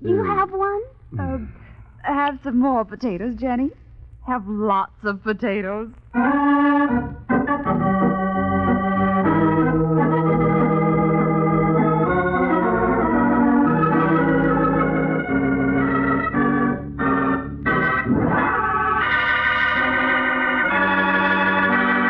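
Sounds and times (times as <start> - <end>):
organ chords: 0.0 - 0.5, 6.0 - 22.0.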